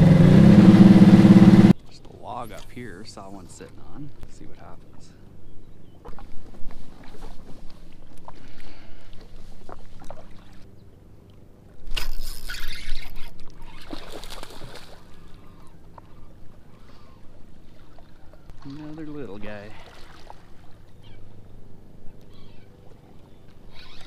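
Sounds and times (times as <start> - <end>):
water lapping against hull: 1.7 - 24.0
fishing reel clicking: 23.7 - 24.0.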